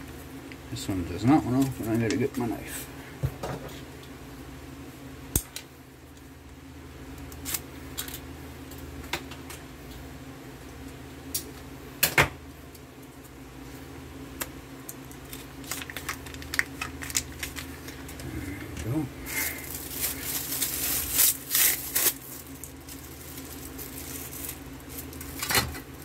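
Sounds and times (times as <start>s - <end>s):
packaging handled: 15.1s - 25.8s
knife cutting plastic packet: 15.1s - 25.9s.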